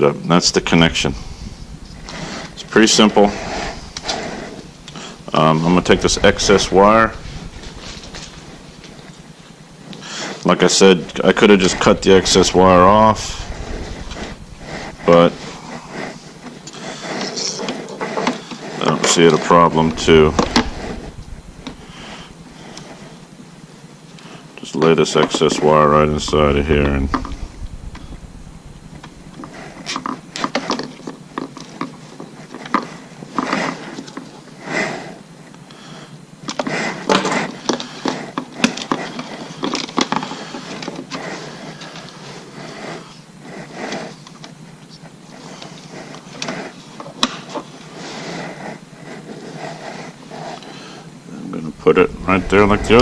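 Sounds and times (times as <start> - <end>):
jacket rubbing on microphone: 0.6 - 9.1, 10.8 - 17.1, 19.1 - 23.1.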